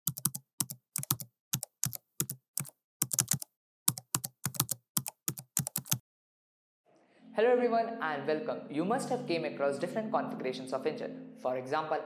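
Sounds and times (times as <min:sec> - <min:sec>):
computer keyboard typing: 0:00.1 - 0:06.0.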